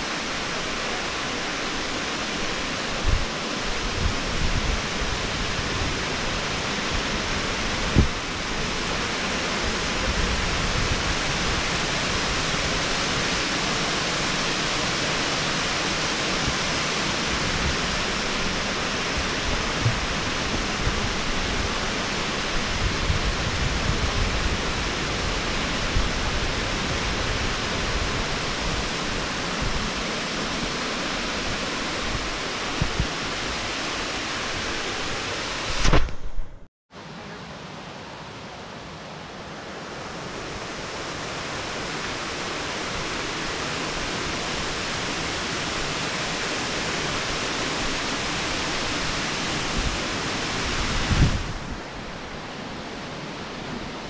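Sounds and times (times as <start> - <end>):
water rushing over rock ledge: 0.0 - 36.1, 39.6 - 54.0.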